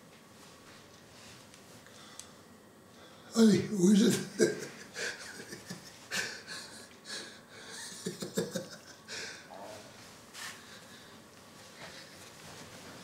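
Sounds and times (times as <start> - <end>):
man laughing in breathy bursts: 4.0 - 9.5.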